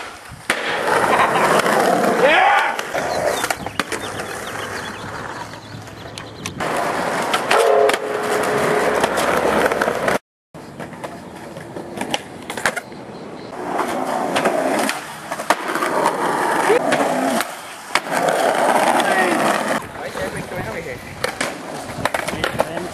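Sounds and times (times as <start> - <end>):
skateboard clacks: 0.0 - 10.2, 13.6 - 20.5, 21.1 - 22.9
skateboard wheels rolling on pavement: 0.0 - 22.9
skateboard scrape with tone: 6.6 - 10.2, 13.5 - 22.2.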